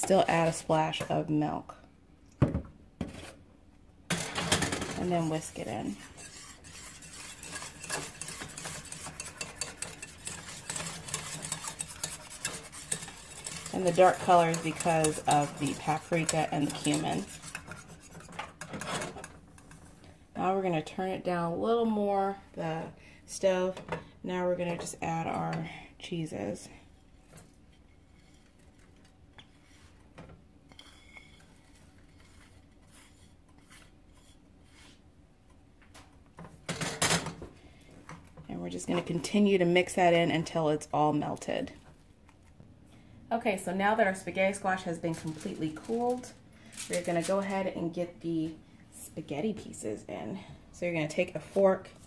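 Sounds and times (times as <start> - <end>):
whisk scraping a saucepan: 0.0 - 1.2, 4.1 - 20.0, 27.1 - 35.1
low steady hum: 0.0 - 52.0.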